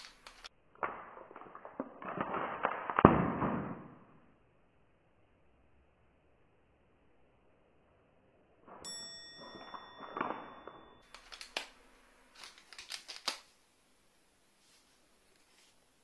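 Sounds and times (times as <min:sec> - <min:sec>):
plastic pouch crinkling: 0:00.0 - 0:03.0, 0:11.0 - 0:13.5
ringing tone: 0:08.8 - 0:11.1.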